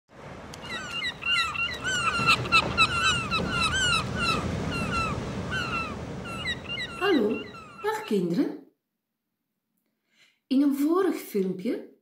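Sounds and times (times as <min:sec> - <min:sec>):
small birds chirping: 0:00.6 - 0:08.3.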